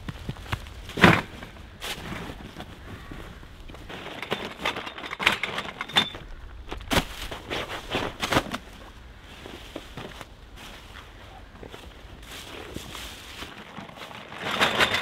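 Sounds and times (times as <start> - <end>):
canvas bags rustling on dry leaves: 6.6 - 14.8.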